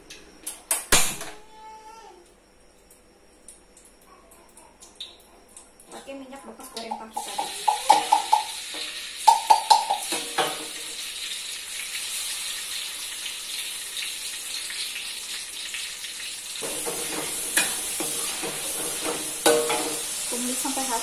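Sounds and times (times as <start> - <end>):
hot oil sizzling: 5.8 - 21.0.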